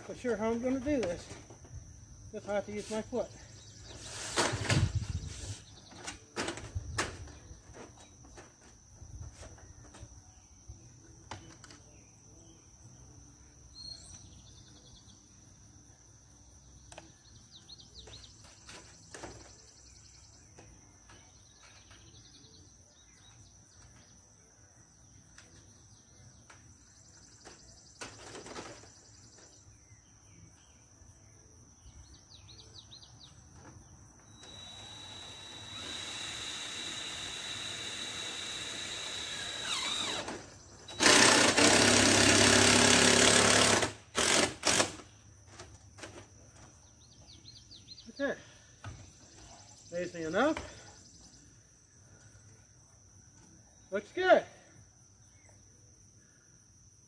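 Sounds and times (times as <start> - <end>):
insect drone: 0.0 - 57.0
bird chirps: 13.7 - 15.3.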